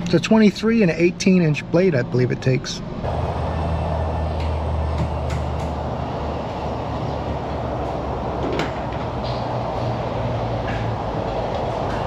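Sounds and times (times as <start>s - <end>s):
mechanical drone and hiss: 3.0s - 7.8s.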